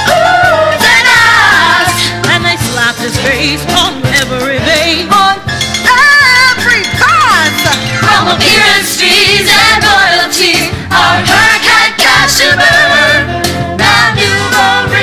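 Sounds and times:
female group singing in harmony: 0:00.0 - 0:02.6, 0:07.9 - 0:15.0
band playing: 0:00.0 - 0:15.0
steady drum beat: 0:00.0 - 0:15.0.

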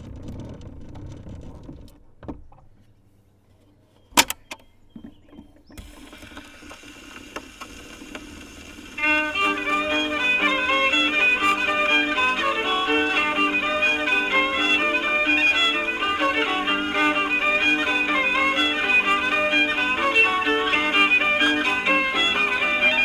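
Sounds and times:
record surface hiss: 0:00.0 - 0:23.0
fiddle tune from record: 0:08.9 - 0:23.0.

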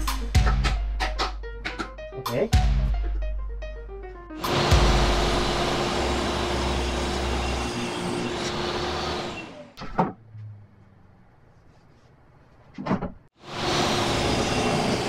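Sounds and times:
saw winding down: 0:04.4 - 0:09.8, 0:13.5 - 0:15.0
table saw cutting wood: 0:04.4 - 0:09.8, 0:13.4 - 0:15.0.

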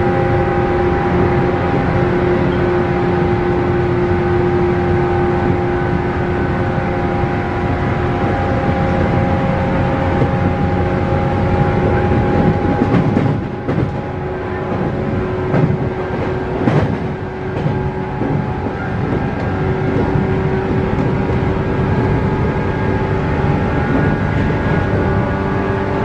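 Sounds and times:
train motor whine: 0:00.0 - 0:26.0
train wheels rumbling: 0:00.0 - 0:26.0
wheels clacking over rail joints: 0:07.7 - 0:26.0.

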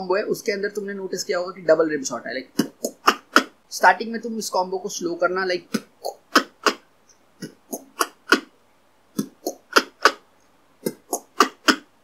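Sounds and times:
beatboxed drum clicks: 0:07.4 - 0:08.5, 0:09.2 - 0:10.2, 0:10.8 - 0:11.9.

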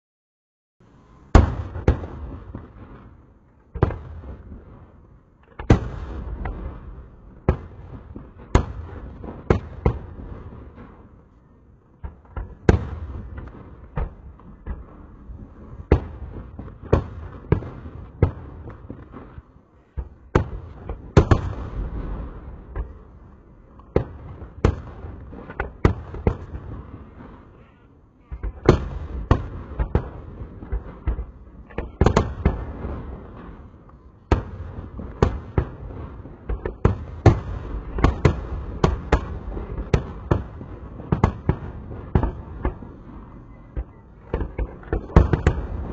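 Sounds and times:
fireworks bangs: 0:01.1 - 0:11.2, 0:12.0 - 0:45.9.

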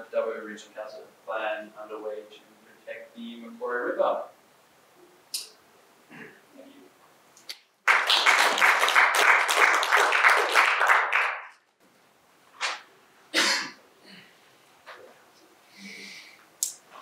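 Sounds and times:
audience applauding: 0:07.8 - 0:11.6.

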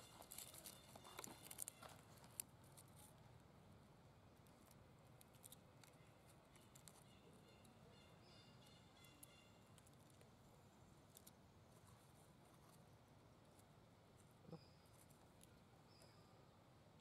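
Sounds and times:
dry leaves crackling: 0:00.0 - 0:02.5.

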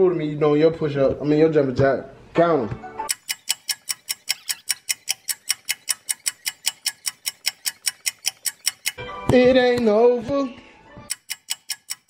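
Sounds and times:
rapid even ticking: 0:03.1 - 0:10.0, 0:11.1 - 0:12.0.

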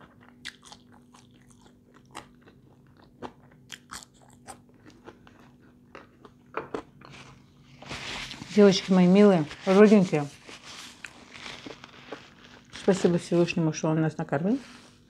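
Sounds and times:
person chewing crunchy food: 0:00.0 - 0:08.4, 0:10.5 - 0:12.8.

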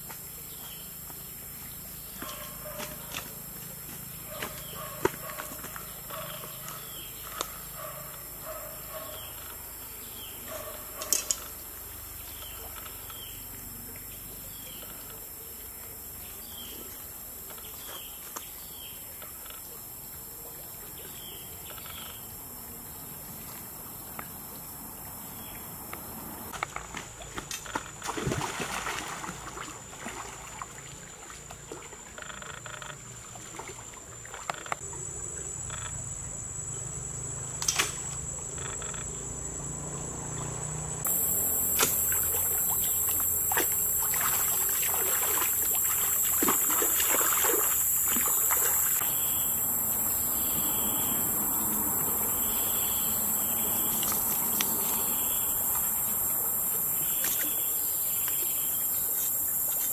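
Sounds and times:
forest insects chorus: 0:00.0 - 0:59.9
splashes in shallow water: 0:26.6 - 0:32.4, 0:40.4 - 0:49.2.

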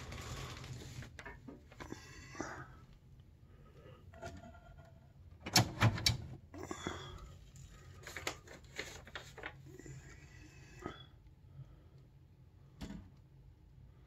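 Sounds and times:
mechanical lever clicks and clunks: 0:05.4 - 0:06.4.

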